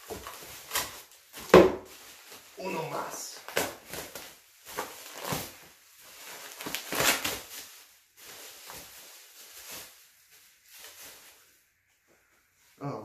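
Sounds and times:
bubble wrap crinkling: 0.0 - 12.8.

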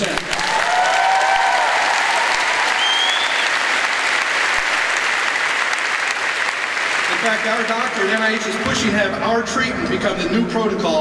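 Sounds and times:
audience applauding: 0.0 - 8.7
people cheering: 0.0 - 8.9.

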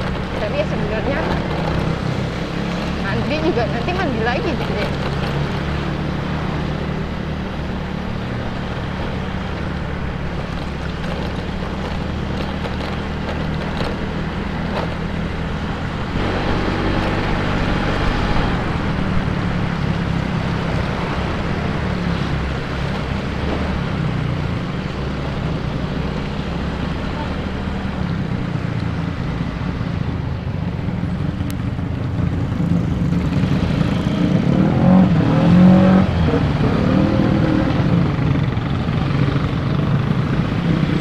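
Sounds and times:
scooter engine running: 0.0 - 7.4, 8.0 - 28.8.

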